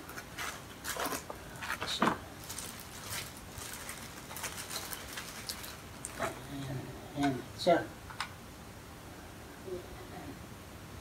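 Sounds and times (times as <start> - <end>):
cardboard and plastic packaging rustling: 0.0 - 6.5.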